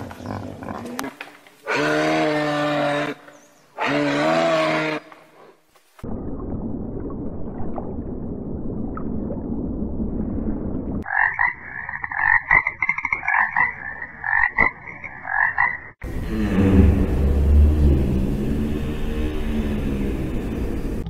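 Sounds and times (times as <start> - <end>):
tree frog croaking: 11.0 - 18.1
low rumbling noise: 16.0 - 21.0.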